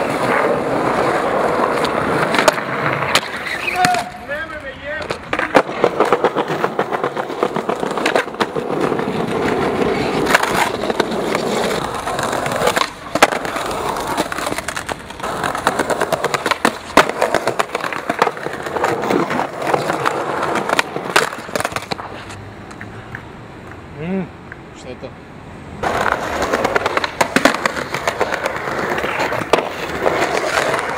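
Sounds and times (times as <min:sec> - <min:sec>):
skateboard clacks popping and landing: 0:00.0 - 0:04.2, 0:05.0 - 0:23.8, 0:25.8 - 0:30.9
skateboard wheels rolling on paving: 0:00.0 - 0:24.8, 0:25.7 - 0:30.9
skater slamming: 0:01.7 - 0:11.7.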